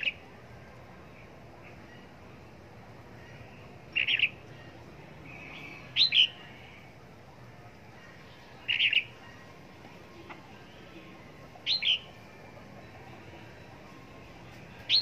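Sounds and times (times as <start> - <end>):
bulbul calling: 3.2 - 4.7, 5.3 - 6.7, 8.1 - 9.5, 10.2 - 12.2, 14.8 - 15.0.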